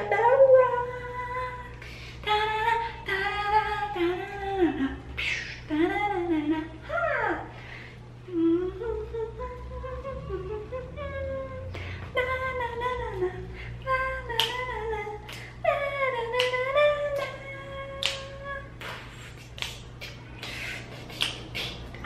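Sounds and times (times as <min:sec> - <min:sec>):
person humming a tune: 0:00.0 - 0:01.7, 0:08.3 - 0:15.0.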